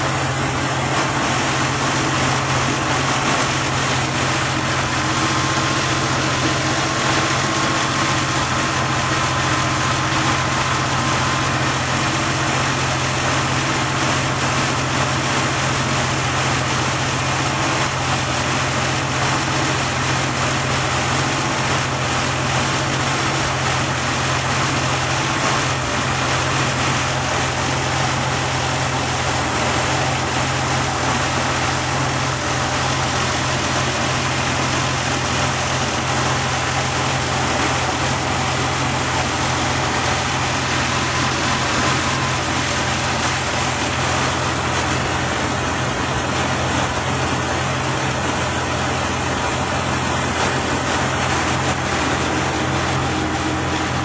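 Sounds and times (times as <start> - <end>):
car engine idling: 21.3 - 54.0.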